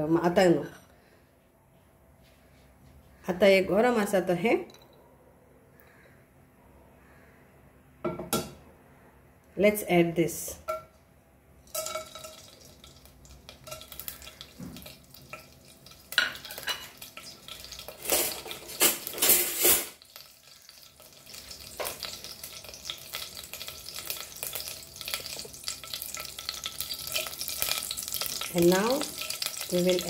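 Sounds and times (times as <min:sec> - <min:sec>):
spices sizzling in hot oil: 0:11.7 - 0:30.0.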